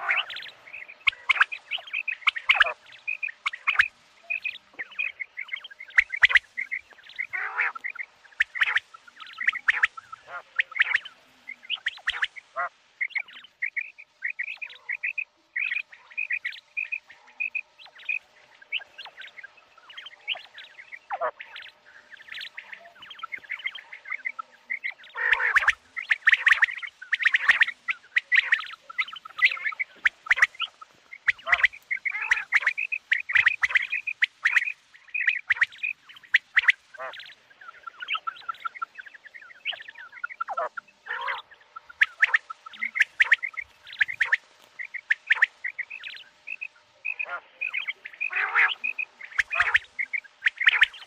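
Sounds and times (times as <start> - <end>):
quail chirping calls: 0.0 - 51.0.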